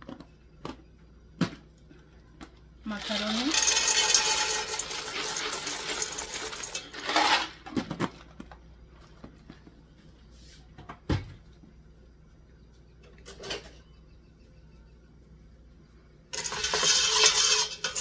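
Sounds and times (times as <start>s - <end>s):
dry pasta rattling into pot: 3.0s - 7.8s, 16.3s - 18.0s.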